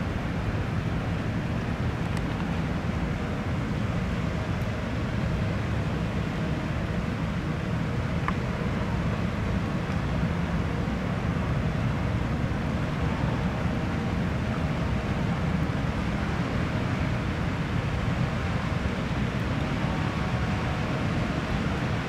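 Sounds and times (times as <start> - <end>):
faint machinery hum: 0.0 - 22.0
low rumble of a large ship: 0.0 - 22.0.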